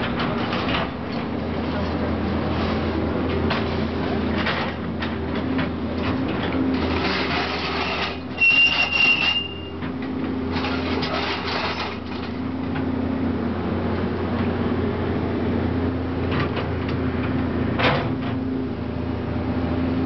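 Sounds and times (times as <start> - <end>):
excavator bucket crunching wall: 0.0 - 12.9
excavator diesel engine running: 0.0 - 20.0
high metallic squeal: 7.0 - 9.8
debris crackling and clattering: 10.5 - 12.4.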